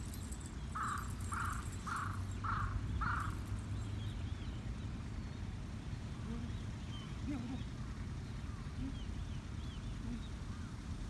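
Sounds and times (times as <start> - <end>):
crow cawing: 0.8 - 3.4.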